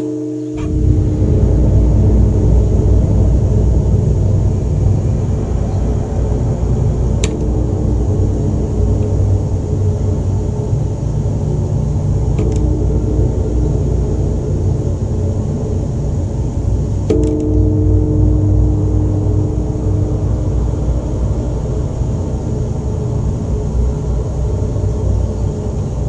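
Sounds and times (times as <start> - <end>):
struck bell ringing: 0.0 - 1.2
deep rumbling drone: 0.0 - 26.0.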